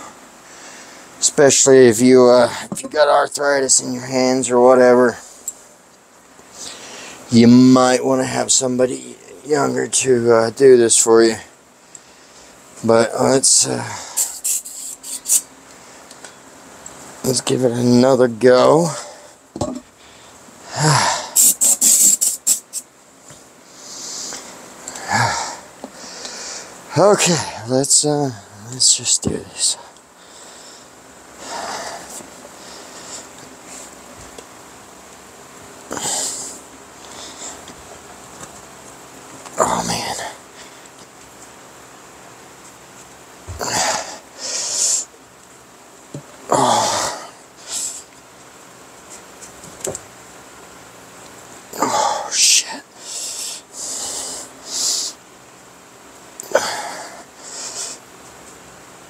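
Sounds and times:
aerosol spray hissing: 14.2s - 15.5s, 21.4s - 22.9s
man breathing out hard: 20.0s - 21.4s, 23.7s - 26.8s
man grunting: 20.7s - 22.1s, 25.0s - 25.6s, 43.5s - 44.2s, 46.5s - 47.4s, 51.8s - 52.9s, 56.4s - 57.2s.

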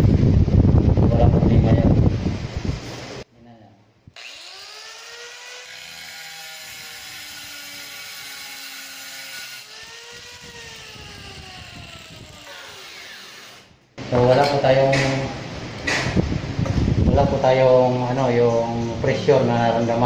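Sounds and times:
angle grinder motor whine: 4.2s - 13.8s.

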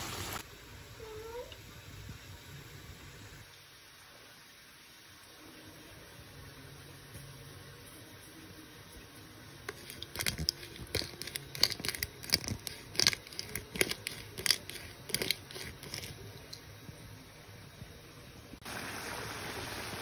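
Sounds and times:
chips deep-frying in oil: 9.6s - 16.6s.

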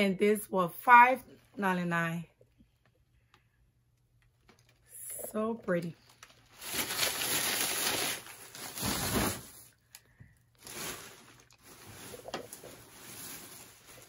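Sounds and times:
packaging rustling: 6.0s - 14.0s.

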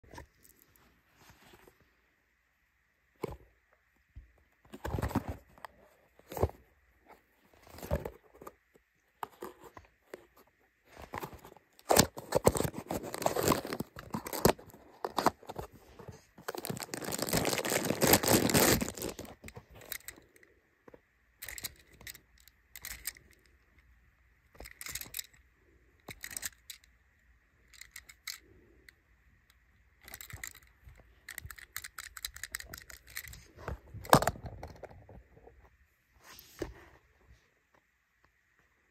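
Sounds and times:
cardboard rustling and tearing: 11.0s - 19.5s
toy car clicks and rattles: 16.6s - 20.2s, 21.4s - 23.5s, 24.5s - 25.4s, 26.0s - 26.9s, 27.6s - 29.0s, 30.0s - 34.8s.

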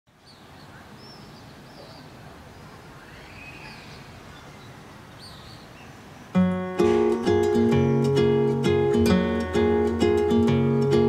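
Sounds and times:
faint bird chirps: 0.2s - 6.4s
long arching bird call: 0.6s - 6.3s.

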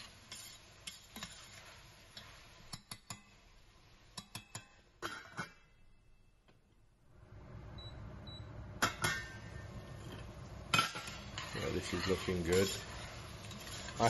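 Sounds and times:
utensil scraping saucepan: 0.0s - 3.3s, 8.9s - 14.0s.

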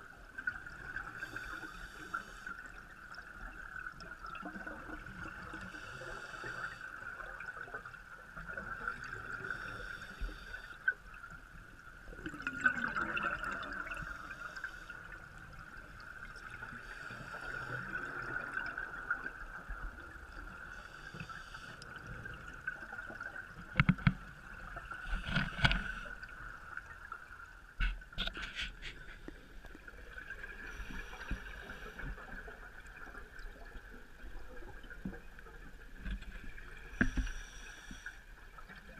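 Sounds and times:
gurgling exhaled bubbles: 12.1s - 14.2s
diver breathing through regulator: 36.9s - 38.2s.

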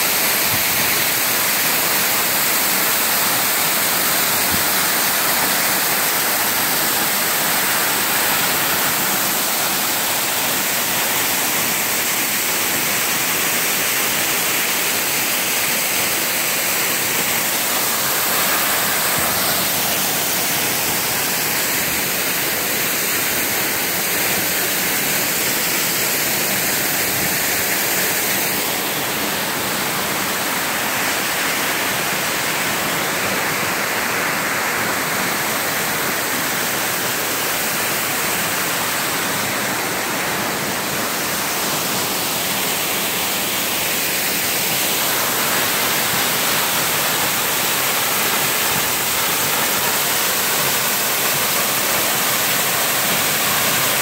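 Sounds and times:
waterfall rushing: 0.0s - 54.0s.

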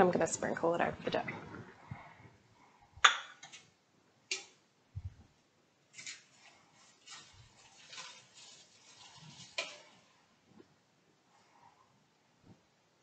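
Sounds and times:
soft rustling: 5.9s - 10.7s.

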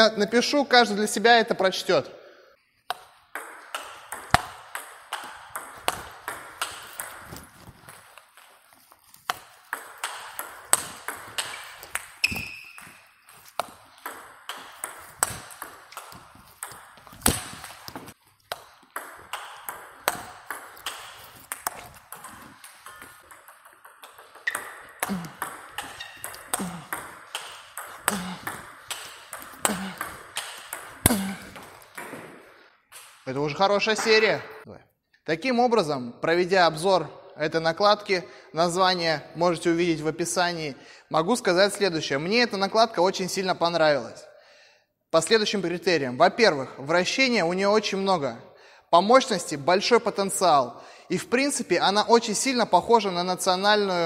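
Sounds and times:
ping pong ball bouncing on table: 2.9s - 7.4s, 9.6s - 17.6s, 18.5s - 32.4s
ping pong ball clicking on rackets: 2.9s - 8.5s, 9.3s - 32.3s.

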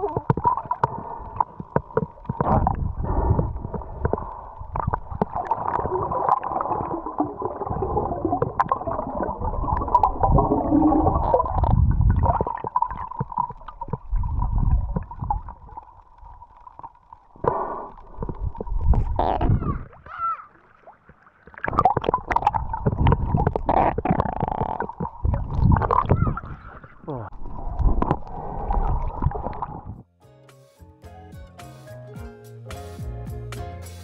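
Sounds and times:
water gurgling underwater: 0.0s - 30.0s.

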